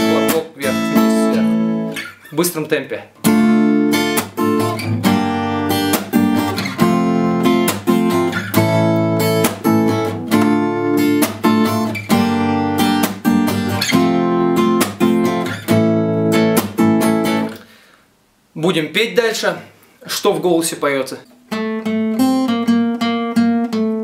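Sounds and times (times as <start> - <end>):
acoustic guitar strummed fast: 0.0 - 2.4, 3.2 - 17.5
percussive string slap: 10.3 - 10.6.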